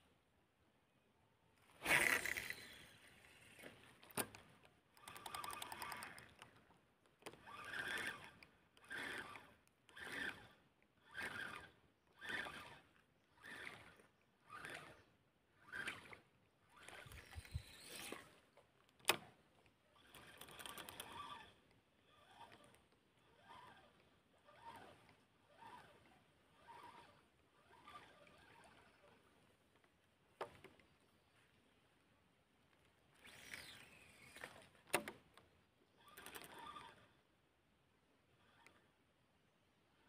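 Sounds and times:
fishing rod swishing: 1.7 - 2.9
fishing reel clicking: 1.8 - 6.6, 7.2 - 18.4, 20.0 - 29.2, 36.0 - 37.1
sharp clicks: 3.6 - 10.3.

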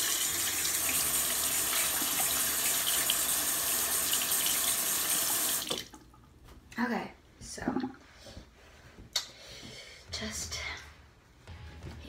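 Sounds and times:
sink tap running: 0.0 - 6.0.

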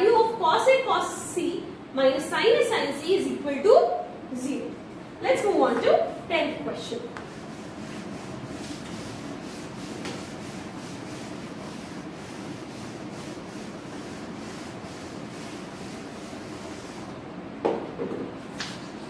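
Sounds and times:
eraser rubbing on chalkboard: 7.2 - 17.1.

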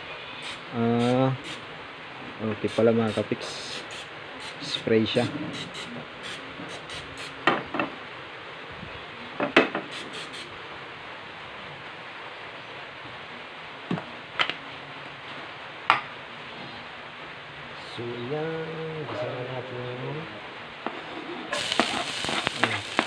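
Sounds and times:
steady low hiss: 0.0 - 23.0
person speaking: 0.7 - 1.6, 2.4 - 3.9, 4.5 - 5.4.

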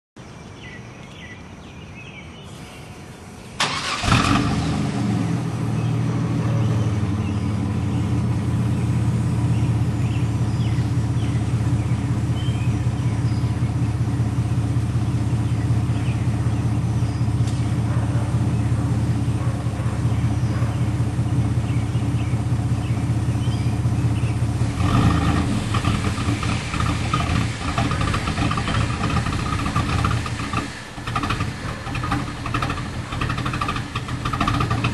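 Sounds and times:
engine starting and idling: 3.5 - 6.4, 12.2 - 34.9.

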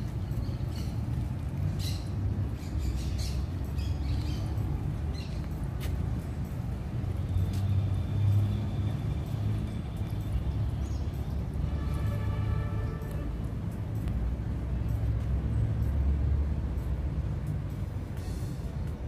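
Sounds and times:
low rumble of traffic or wind: 0.0 - 19.0
footsteps on wooden boardwalk: 5.4 - 6.3.

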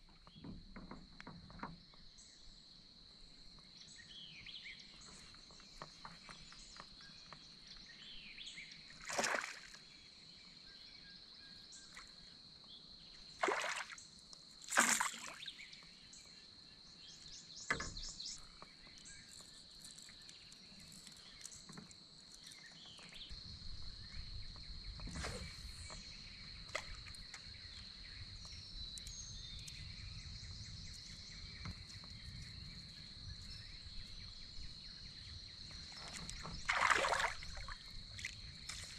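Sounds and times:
water splashing around kayak: 9.0 - 9.8, 13.3 - 15.6, 35.8 - 38.9.

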